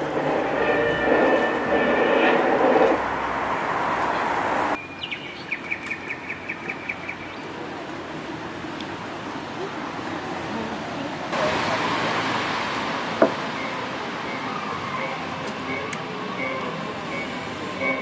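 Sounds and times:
rail vehicle rumbling: 0:00.0 - 0:05.0, 0:06.8 - 0:18.0.

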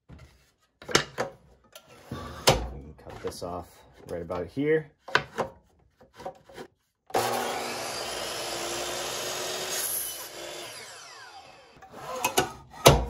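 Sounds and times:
miter saw cutting wood: 0:07.1 - 0:13.0.

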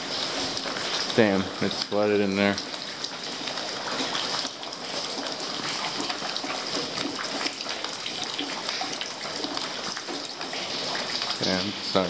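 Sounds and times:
water drips and splashes: 0:00.0 - 0:12.0
water rushing: 0:00.0 - 0:12.0.

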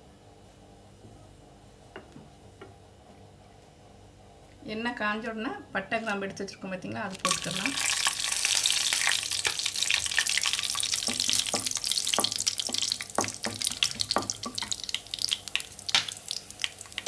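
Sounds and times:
spices sizzling in hot oil: 0:07.1 - 0:17.0.

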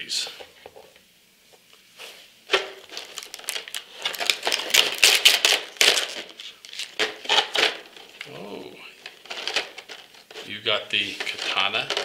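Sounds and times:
plastic blister tray crackling: 0:02.5 - 0:12.0.

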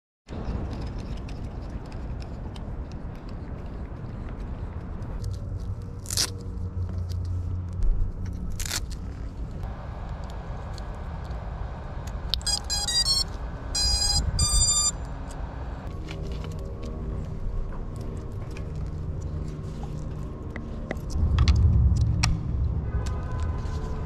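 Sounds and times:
low steady rumble: 0:00.4 - 0:24.0
drone motor startup beeps: 0:12.4 - 0:15.0.

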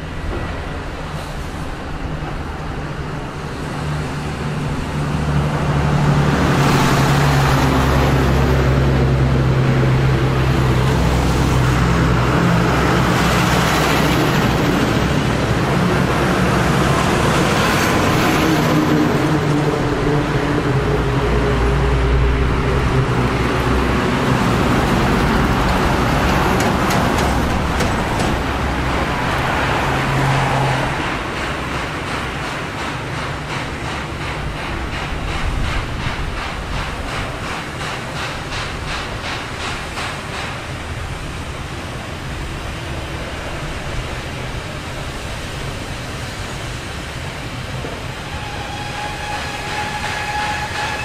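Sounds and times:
train rumble: 0:00.0 - 0:51.0
steam locomotive exhaust: 0:44.8 - 0:51.0.

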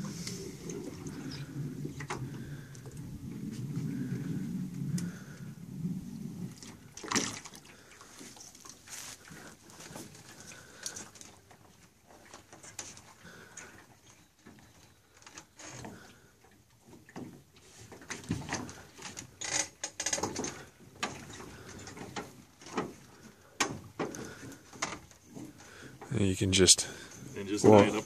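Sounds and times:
water sloshing and splashing: 0:00.0 - 0:26.2.

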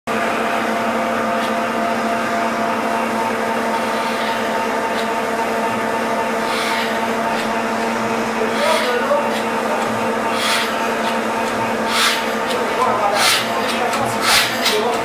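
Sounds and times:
water-mill machinery hum: 0:00.1 - 0:15.0
blowlamp hissing: 0:06.2 - 0:09.2.

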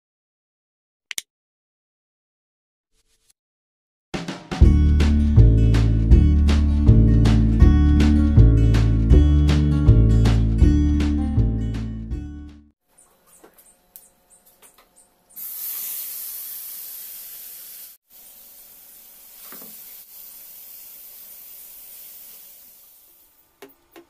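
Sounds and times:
squid sizzling in hot oil: 0:15.3 - 0:23.2.

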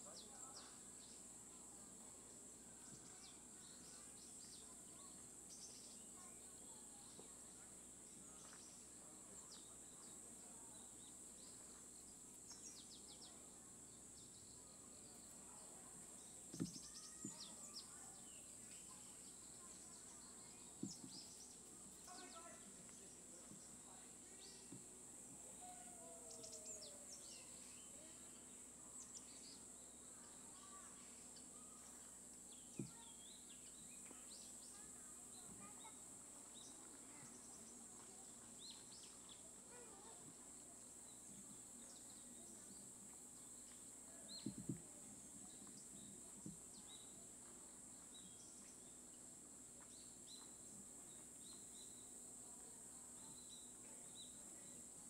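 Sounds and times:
steady high-pitched hiss: 0:00.0 - 0:55.0
small bird chirps: 0:02.8 - 0:24.8
soft knocks: 0:16.5 - 0:17.5, 0:44.4 - 0:44.8.

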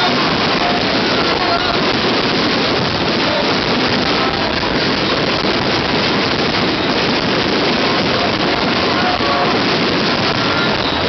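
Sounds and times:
fireworks crackling roar: 0:00.0 - 0:11.0.

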